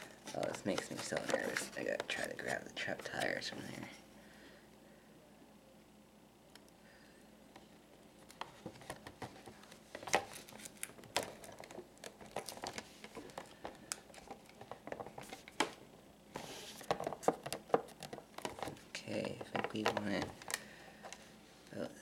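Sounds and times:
plastic blister pack crinkling: 0.0s - 3.4s, 8.3s - 15.7s.

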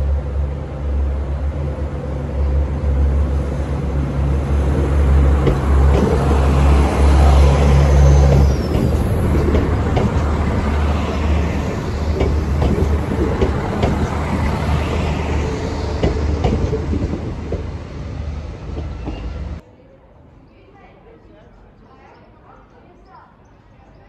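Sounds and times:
train wheels on rails: 1.0s - 19.6s.

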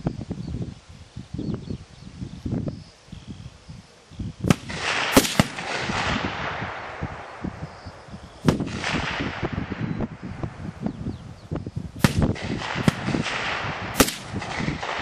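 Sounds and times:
rifle shots echoing: 4.5s - 7.4s, 8.4s - 9.9s, 12.0s - 15.0s.

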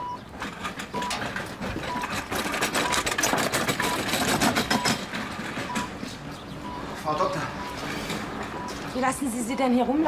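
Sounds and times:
stretcher wheels clattering: 0.0s - 10.0s
patient monitor beeping: 5.7s - 6.0s, 6.6s - 9.2s.

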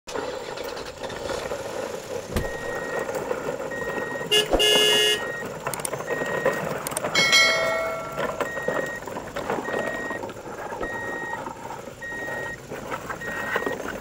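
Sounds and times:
steady engine drone: 0.4s - 14.0s
vehicle horn toot: 4.2s - 5.4s.

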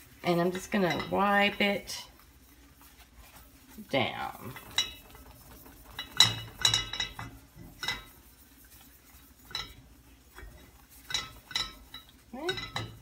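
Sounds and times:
frying pan clinking on stove grate: 6.0s - 8.1s, 10.4s - 13.0s.

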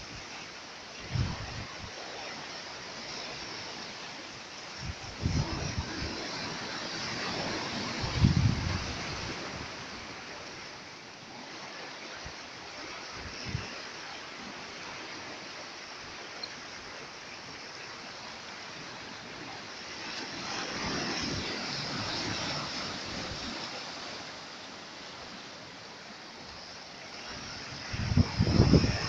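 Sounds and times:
sea water washing against rocks: 0.0s - 16.0s, 16.8s - 29.0s.

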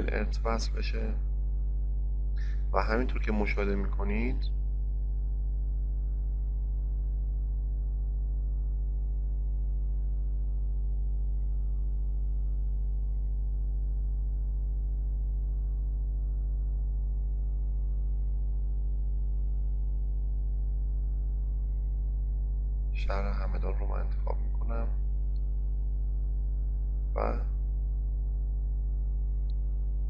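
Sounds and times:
electrical mains hum: 0.0s - 30.0s.

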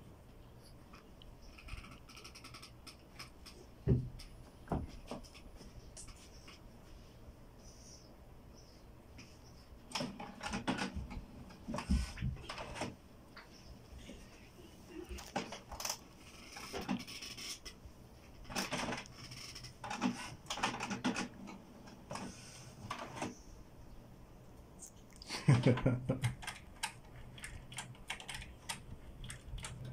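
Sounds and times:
printer clicking and clattering: 9.9s - 13.0s, 18.5s - 22.3s, 22.9s - 23.3s.

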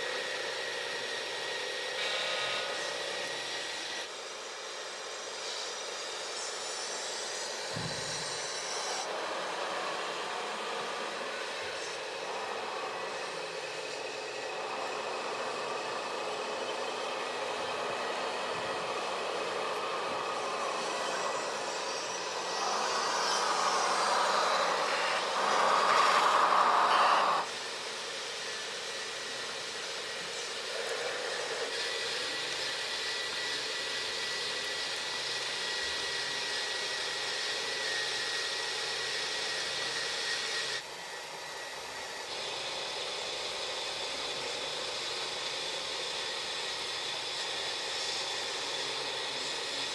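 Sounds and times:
electric motors whirring: 0.0s - 49.9s.

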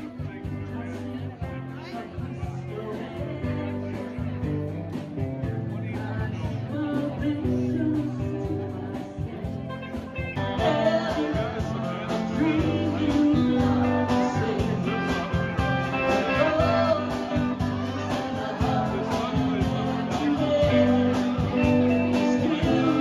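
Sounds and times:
live band playing: 0.0s - 23.0s
person singing: 6.0s - 23.0s.

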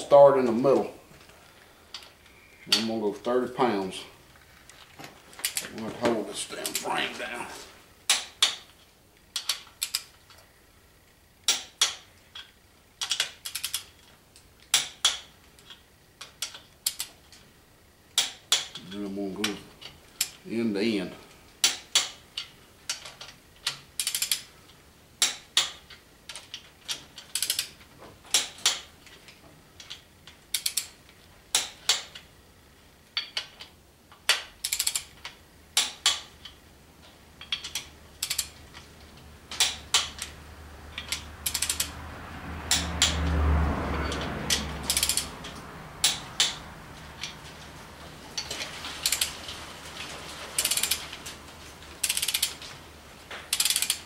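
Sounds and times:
torque wrench ratchet clicking: 11.5s - 13.9s, 23.7s - 24.5s, 27.3s - 27.7s, 30.5s - 30.9s, 34.3s - 35.2s, 37.4s - 38.6s, 40.9s - 42.0s, 44.1s - 45.3s, 50.6s - 51.0s, 52.0s - 52.6s, 53.5s - 54.0s.

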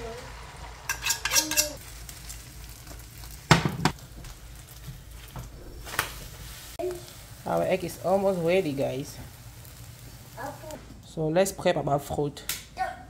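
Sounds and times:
eggs sizzling in frying pan: 0.0s - 10.8s
frying pan clatter: 0.8s - 1.8s, 3.3s - 4.0s.

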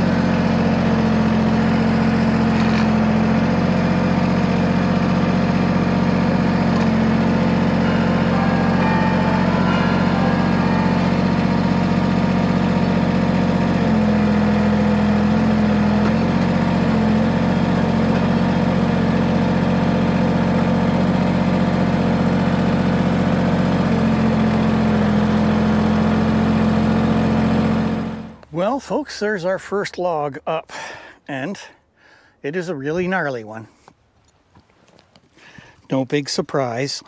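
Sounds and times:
tractor diesel engine running: 0.0s - 28.6s.

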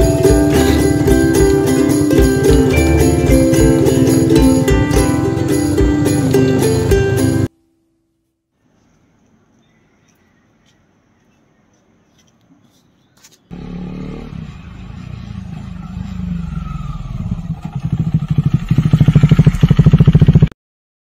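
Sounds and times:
motorcycle passing close: 0.0s - 7.5s, 13.5s - 20.5s.

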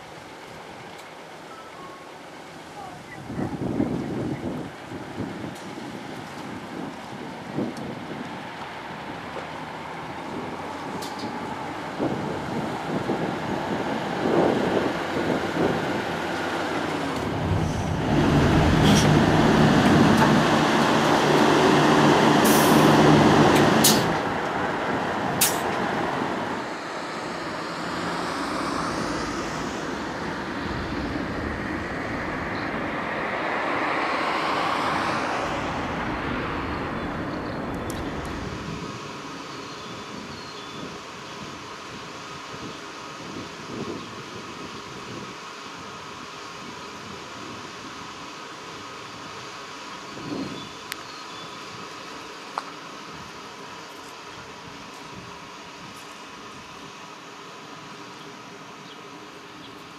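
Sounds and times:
road traffic: 0.0s - 59.9s
diesel bus driving past: 4.4s - 59.9s
bus air hisses: 22.4s - 23.0s.

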